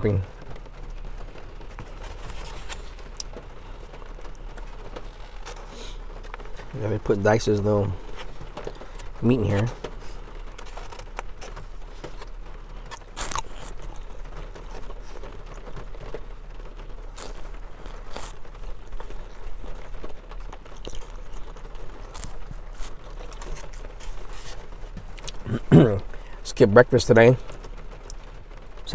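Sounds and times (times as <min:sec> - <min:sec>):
chewing: 0:08.0 - 0:16.3, 0:16.9 - 0:26.4.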